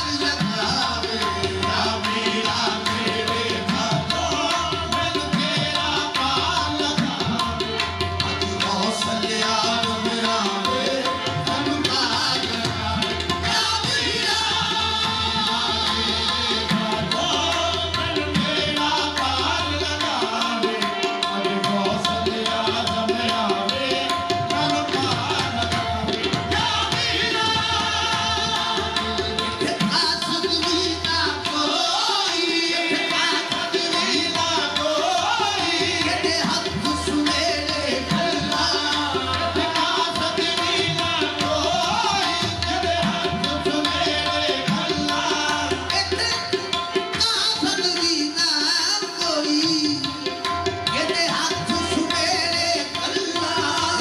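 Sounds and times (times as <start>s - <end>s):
harmonium tones: 0.0s - 54.0s
tabla drumming: 0.0s - 54.0s.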